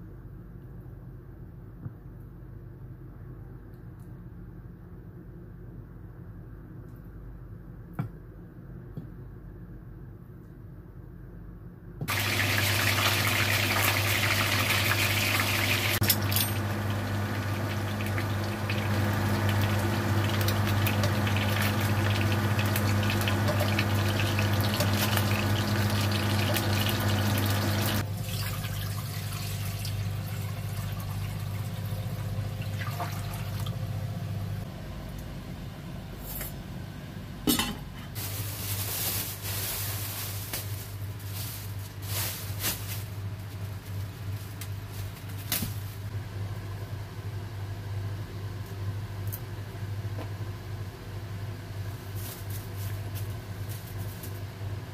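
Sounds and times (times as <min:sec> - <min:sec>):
low steady hum: 0:00.0 - 0:54.9
fish frying in oil: 0:12.1 - 0:32.6.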